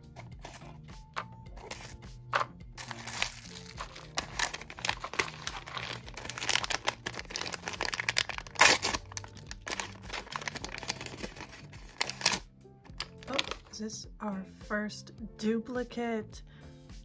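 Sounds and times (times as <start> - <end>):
packaging crinkling: 1.6 - 1.9, 2.8 - 13.7.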